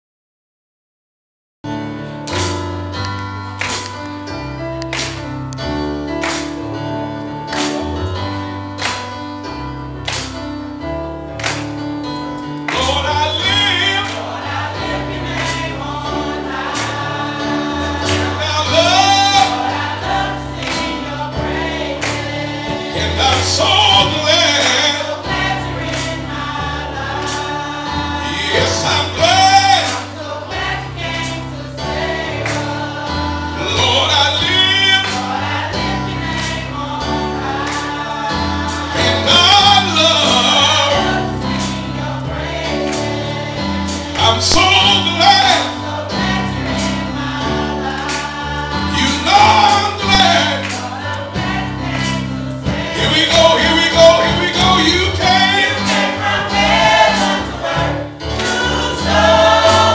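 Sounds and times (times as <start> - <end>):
keyboard: 1.7 - 59.9
gospel choir singing: 2.0 - 59.9.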